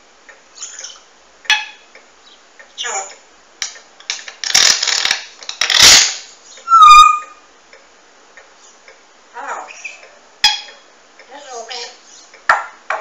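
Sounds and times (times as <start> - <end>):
parrot squawking: 0.6 - 1.8, 2.8 - 3.2, 6.6 - 7.5, 9.3 - 10.7
parrot talking: 2.8 - 3.2, 6.6 - 7.4, 9.3 - 10.2, 11.3 - 12.0
parrot whistle: 6.6 - 7.4.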